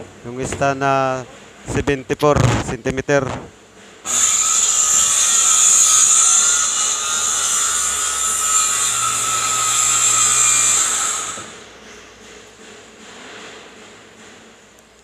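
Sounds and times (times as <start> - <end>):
circular saw cutting wood: 4.0 - 11.7.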